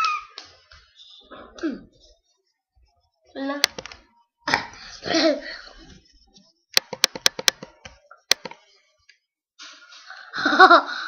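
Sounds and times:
sharp taps: 6.8 - 8.6.

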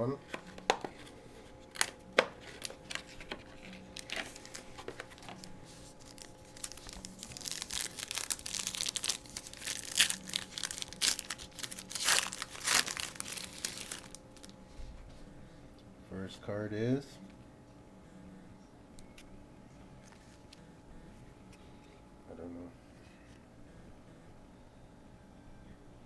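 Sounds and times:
foil wrapper crinkling and tearing: 1.6 - 14.6.

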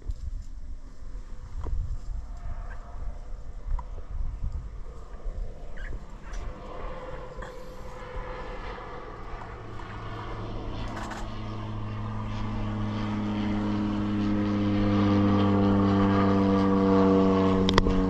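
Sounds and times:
engine running: 0.8 - 18.0.

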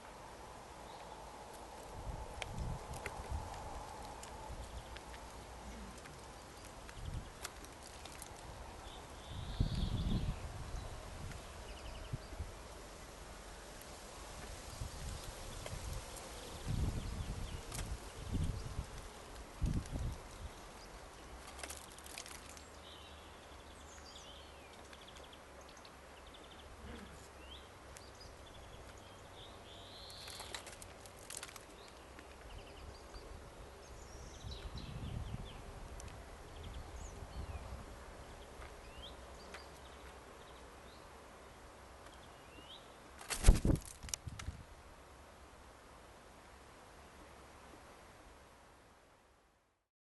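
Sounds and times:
small birds calling: 14.7 - 35.8.

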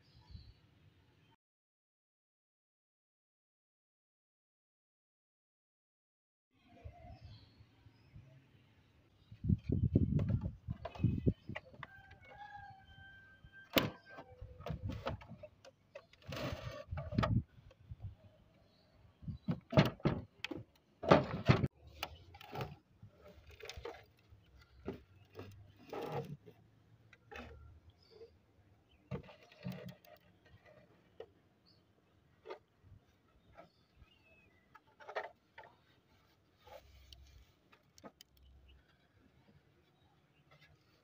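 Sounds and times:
plastic case knocks and clunks: 19.4 - 21.7
short scraping rubs: 35.0 - 38.3.

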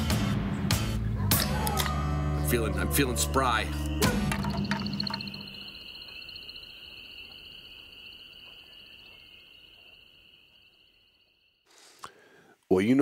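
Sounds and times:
high-pitched insect trill: 3.9 - 11.7.

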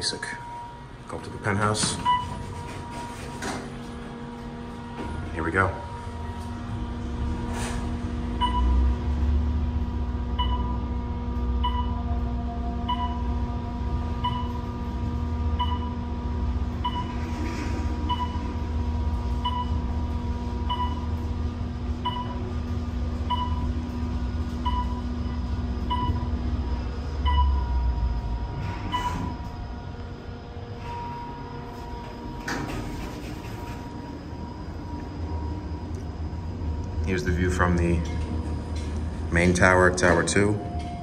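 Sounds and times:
elevator low rumble and hum: 0.0 - 41.0
short electronic elevator beep: 16.8 - 17.3, 18.0 - 18.6, 24.6 - 26.3, 27.2 - 29.5.

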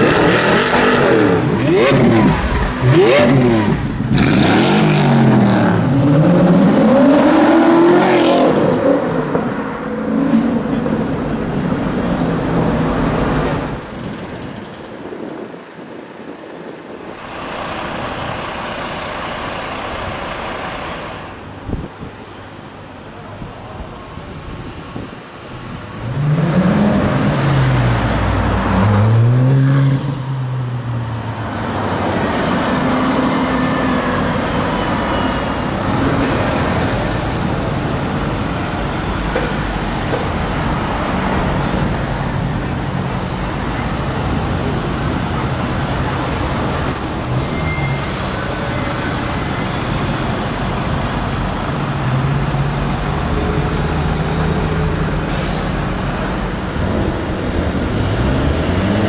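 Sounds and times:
engine revving: 0.0 - 8.8
city traffic engines: 0.0 - 59.0.

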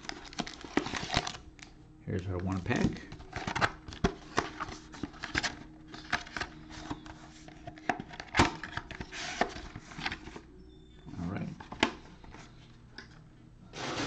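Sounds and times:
cardboard rustling: 13.8 - 14.0.

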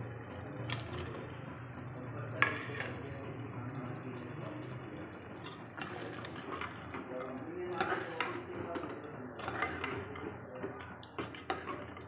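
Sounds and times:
potatoes clattering into pot: 9.4 - 12.0.

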